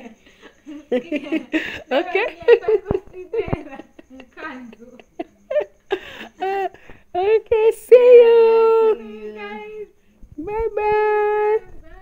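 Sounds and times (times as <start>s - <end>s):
women laughing: 0.0s - 6.8s
women calling sing-song: 7.2s - 12.0s.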